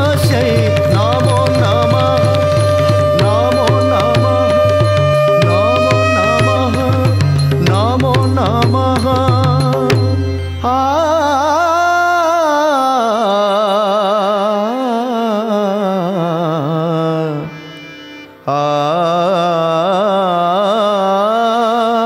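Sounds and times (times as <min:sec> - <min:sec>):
ornamented melodic line: 0:00.0 - 0:11.8.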